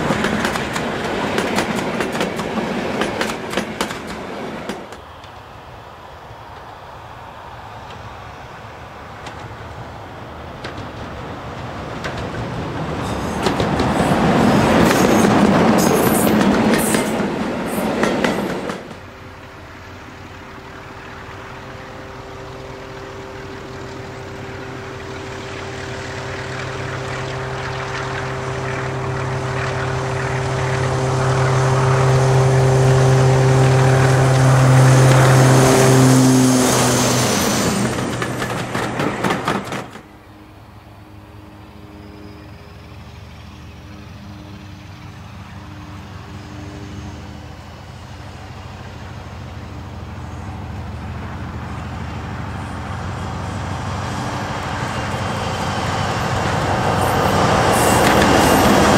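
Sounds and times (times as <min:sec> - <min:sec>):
train wheels clicking on rail joints: 0:00.0 - 0:05.6, 0:07.6 - 0:40.4, 0:48.1 - 0:58.9
diesel locomotive passing: 0:00.0 - 0:58.9
diesel engine droning: 0:12.5 - 0:58.9
distant diesel engine running: 0:12.6 - 0:40.2.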